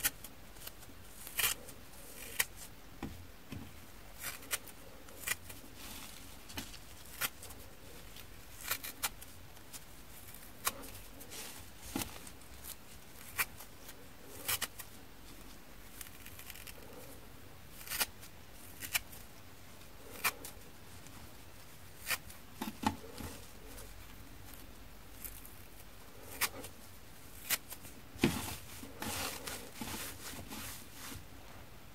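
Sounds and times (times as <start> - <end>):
sponge tearing crackles: 0.0 - 2.7, 4.1 - 15.0, 17.7 - 19.3, 23.0 - 31.2.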